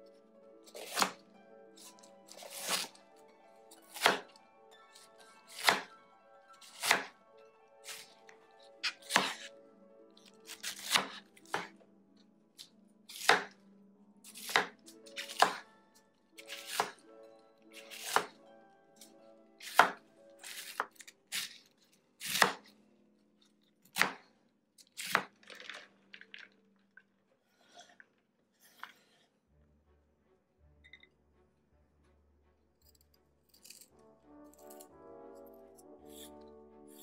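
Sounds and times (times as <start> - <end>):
quiet background music: 0.0 - 37.0
knife chopping on cutting board: 0.8 - 1.2, 2.3 - 2.9, 3.9 - 4.3, 5.5 - 5.9, 6.7 - 7.1, 8.8 - 9.5, 10.5 - 11.7, 13.1 - 13.5, 14.3 - 15.6, 16.4 - 17.0, 17.8 - 18.3, 19.6 - 21.5, 22.2 - 22.6, 24.0 - 24.2.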